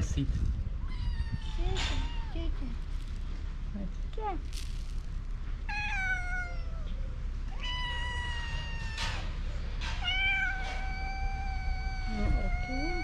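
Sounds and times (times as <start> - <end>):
cats meowing: 0.8 - 3.2, 5.6 - 13.0.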